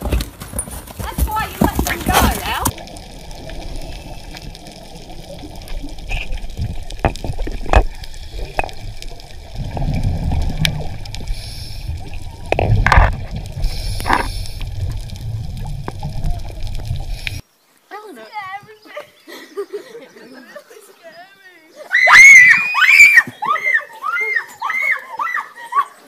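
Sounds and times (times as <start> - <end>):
clicks underwater: 1.6 - 17.4
gurgling bubble bursts: 2.6 - 17.4
muffled underwater rumble: 2.7 - 17.4.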